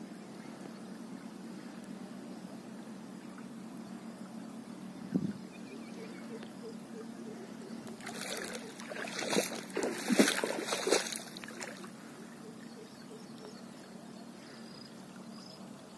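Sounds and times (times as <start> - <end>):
faint steady hum: 0.0 - 15.9
muddy water splashing: 7.8 - 12.3.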